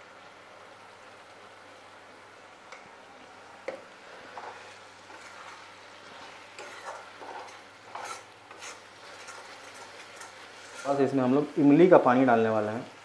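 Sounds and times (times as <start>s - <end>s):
food sizzling and bubbling: 0.0s - 13.0s
metal spatula scraping pan: 4.3s - 11.3s.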